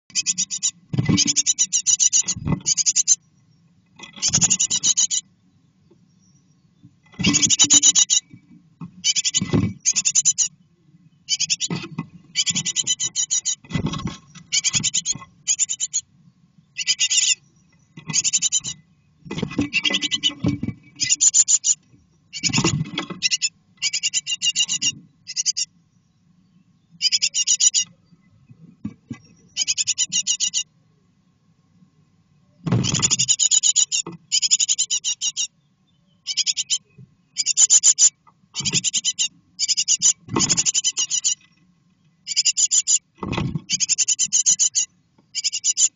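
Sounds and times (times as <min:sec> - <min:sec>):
nestlings begging calls: 0:00.1 - 0:03.2, 0:04.1 - 0:05.2, 0:07.1 - 0:08.3, 0:09.0 - 0:10.5, 0:11.2 - 0:13.7, 0:14.3 - 0:16.1, 0:16.8 - 0:18.8, 0:19.7 - 0:25.7, 0:27.0 - 0:27.9, 0:29.4 - 0:30.7, 0:32.8 - 0:35.6, 0:36.2 - 0:41.5, 0:42.2 - 0:45.9
chicks scratching and thumping: 0:00.8 - 0:01.6, 0:02.2 - 0:02.8, 0:04.0 - 0:04.8, 0:06.9 - 0:10.0, 0:11.6 - 0:15.4, 0:17.9 - 0:23.4, 0:32.6 - 0:33.3, 0:40.0 - 0:41.5, 0:43.1 - 0:44.0.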